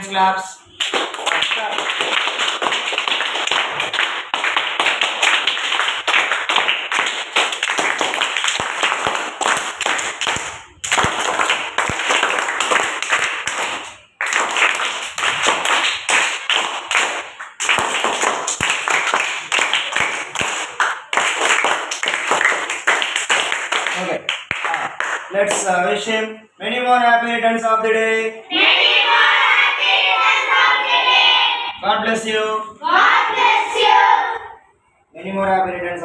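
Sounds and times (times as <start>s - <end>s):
children applauding: 0.8s - 25.2s.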